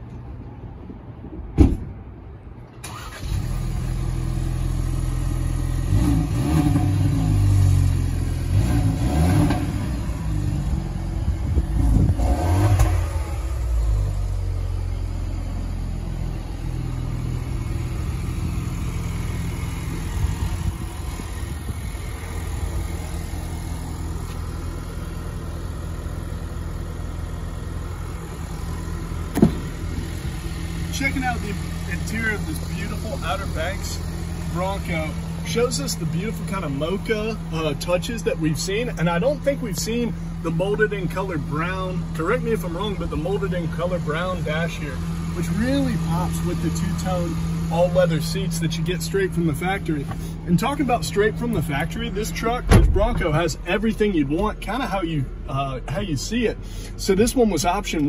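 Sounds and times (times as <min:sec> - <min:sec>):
car engine starting and idling: 0:00.1 - 0:58.0
sharp knock: 0:29.3 - 0:29.7, 0:52.7 - 0:53.2.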